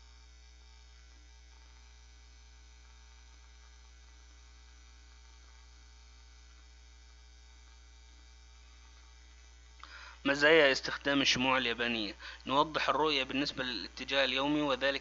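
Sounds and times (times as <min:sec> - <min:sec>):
low electrical mains hum: 0:00.0 - 0:15.0
faint hiss: 0:08.6 - 0:15.0.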